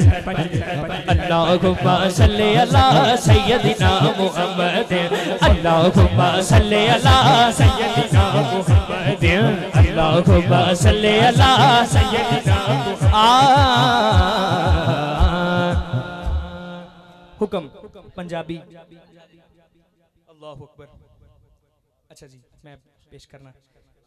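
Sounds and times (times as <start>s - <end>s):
deep pulsing beat: 0.0s - 4.2s, 5.4s - 17.1s
man singing into microphone: 0.0s - 17.8s.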